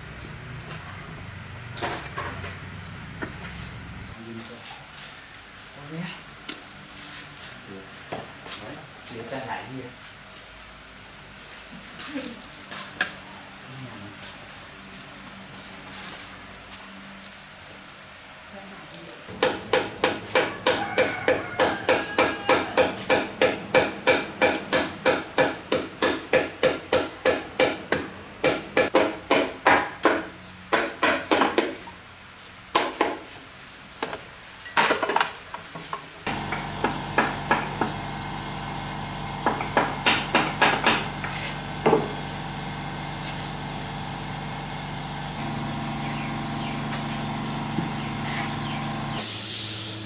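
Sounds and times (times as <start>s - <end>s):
machine hum: 36.3s - 50.0s.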